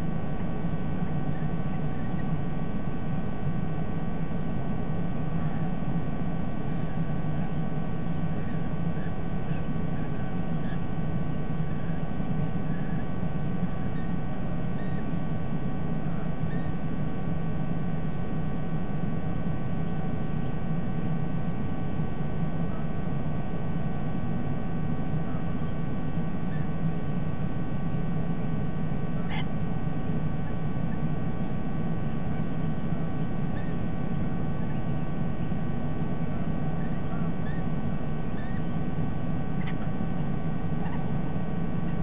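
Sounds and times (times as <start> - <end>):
electrical hum and hiss: 0.0 - 42.0
faint bird chirps: 0.2 - 42.0.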